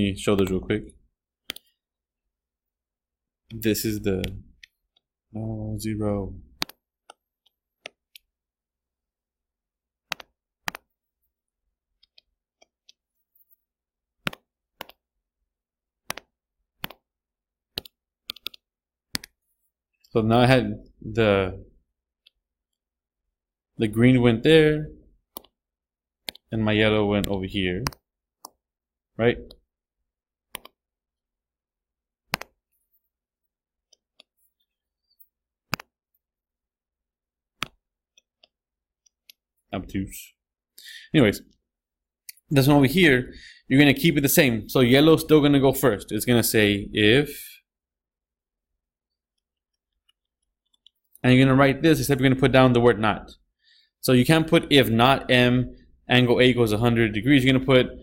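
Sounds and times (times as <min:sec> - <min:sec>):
mouse clicks: 0:01.4 - 0:01.8, 0:06.6 - 0:08.3, 0:10.1 - 0:10.9, 0:14.2 - 0:15.0, 0:16.0 - 0:17.1, 0:17.7 - 0:19.4, 0:25.3 - 0:25.6, 0:26.2 - 0:26.5, 0:27.2 - 0:28.6, 0:30.5 - 0:30.8, 0:32.3 - 0:32.6, 0:35.0 - 0:36.0, 0:37.6 - 0:39.4.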